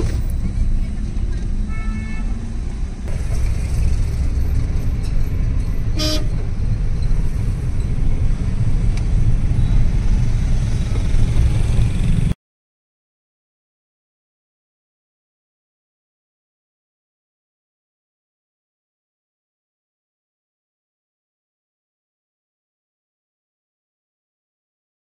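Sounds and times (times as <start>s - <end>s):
low rumble of road traffic: 0.0s - 12.4s
vehicle horn toots: 1.7s - 2.4s, 5.9s - 6.4s.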